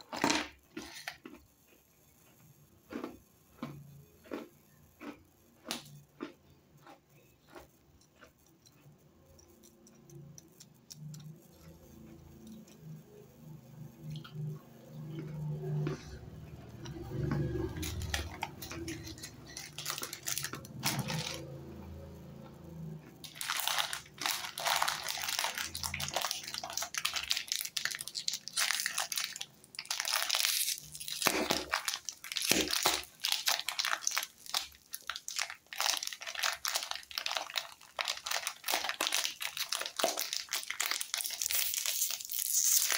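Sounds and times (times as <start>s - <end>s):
plastic wrappers crinkling: 0.0s - 1.3s, 17.2s - 21.8s, 23.2s - 42.9s.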